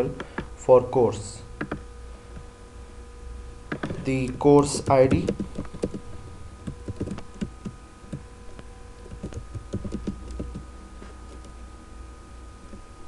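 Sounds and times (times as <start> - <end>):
faint steady hum: 0.0 - 13.0
typing on a computer keyboard: 1.6 - 1.8, 3.7 - 6.0, 6.6 - 8.2, 9.0 - 10.7.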